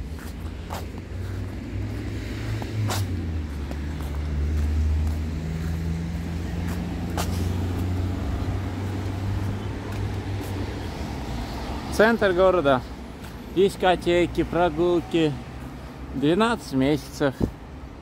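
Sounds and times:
vehicle engine running: 0.1 - 10.1.

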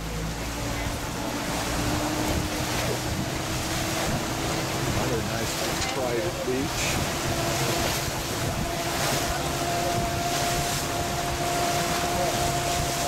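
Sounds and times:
boat motor humming: 0.0 - 13.0
water rushing past hull: 0.0 - 13.0
wind buffeting microphone: 0.4 - 13.0.

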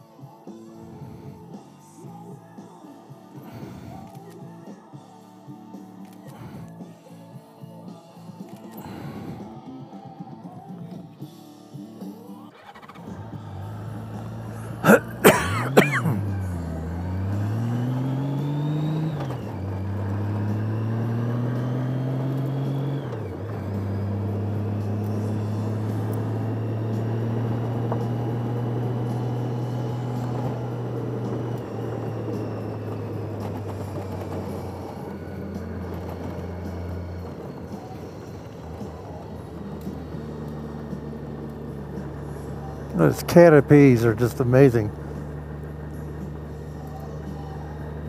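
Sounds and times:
motorcycle engine shifting gears: 12.0 - 48.0.

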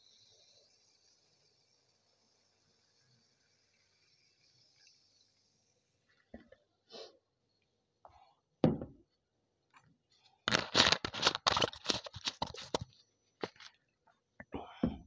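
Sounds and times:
glass mug knocking on table: 8.6 - 9.0
plastic bottle crinkling: 10.5 - 13.8.

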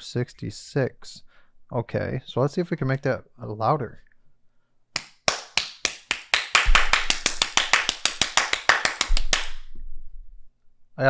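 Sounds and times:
hands clapping: 5.0 - 9.7.

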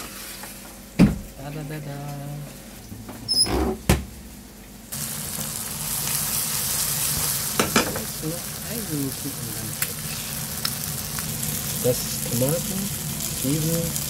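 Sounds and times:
food sizzling in a pan: 4.9 - 14.0.

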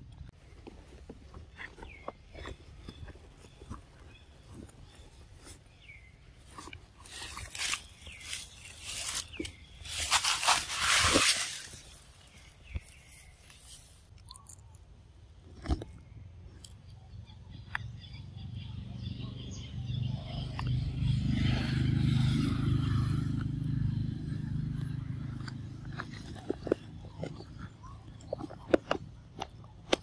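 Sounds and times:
monkey chewing a snack: 24.8 - 30.0.

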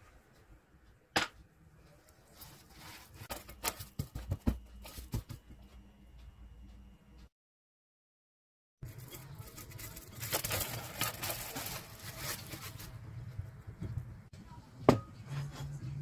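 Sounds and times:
cling film crinkling: 8.8 - 13.0.

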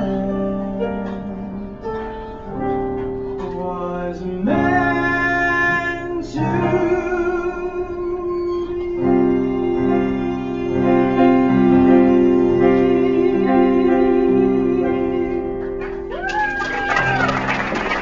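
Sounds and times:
man singing a long note: 0.0 - 1.8, 3.4 - 9.8, 11.8 - 15.6
piano chords: 0.0 - 18.0.

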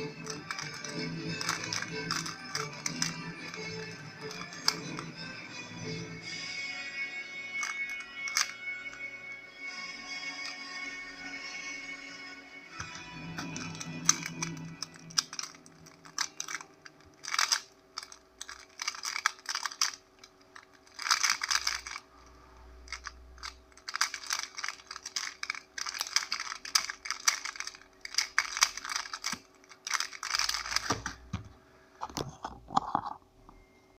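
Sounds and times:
plastic puzzle clicking: 0.0 - 5.2, 7.5 - 9.0, 12.8 - 22.1, 22.8 - 33.2.

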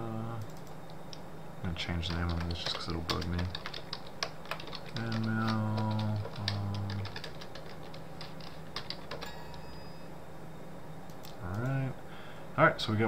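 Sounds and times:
low steady hum-like tone: 0.0 - 13.0
keyboard typing clicks: 0.4 - 1.2, 2.1 - 9.8, 11.1 - 11.8.

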